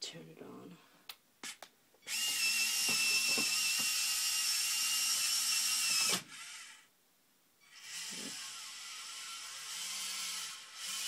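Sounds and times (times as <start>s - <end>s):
small electric motors whining: 2.0s - 6.9s, 7.6s - 11.0s.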